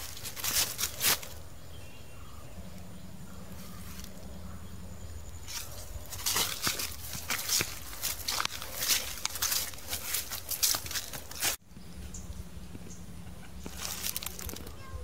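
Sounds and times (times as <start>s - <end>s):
footsteps crunching through leaves: 0.0s - 1.4s, 5.4s - 11.6s, 13.6s - 14.8s.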